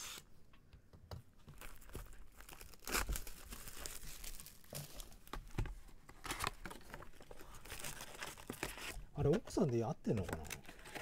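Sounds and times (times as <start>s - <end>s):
plastic shrink wrap tearing: 1.6s - 5.3s, 6.3s - 9.4s.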